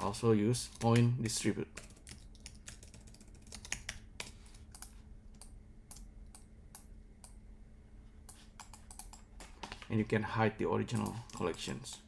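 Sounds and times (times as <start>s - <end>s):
computer keyboard keys tapping: 0.7s - 1.1s, 1.7s - 7.4s, 8.3s - 9.8s.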